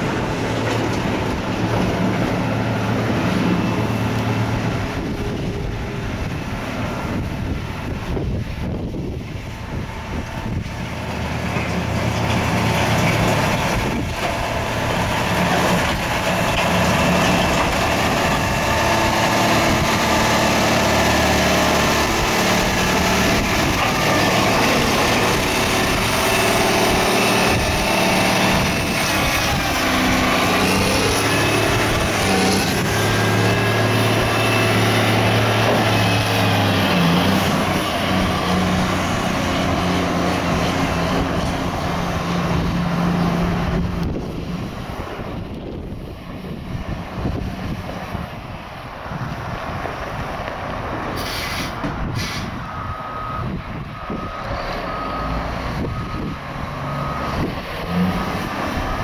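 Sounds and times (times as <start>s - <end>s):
diesel engine running: 0.0s - 59.0s.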